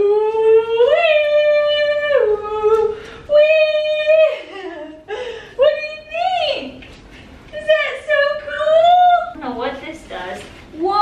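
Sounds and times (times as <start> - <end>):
woman singing wordless tune: 0.0 - 6.8.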